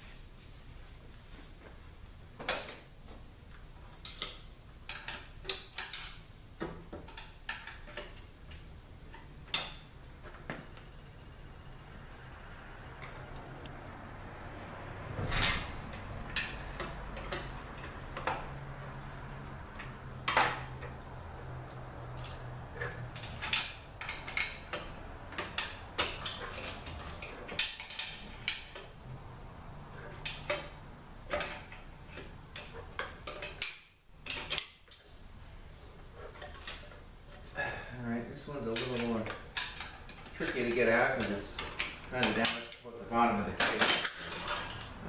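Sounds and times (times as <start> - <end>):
hand tools clinking on metal: 43.6 - 45.0.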